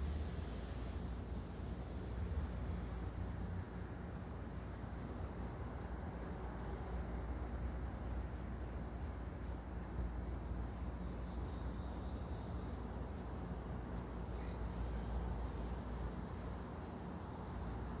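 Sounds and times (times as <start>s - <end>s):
crickets trilling: 0.0s - 18.0s.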